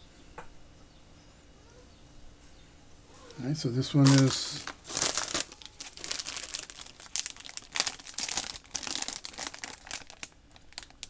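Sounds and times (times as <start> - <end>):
foil wrapper crinkling: 3.8 - 11.0.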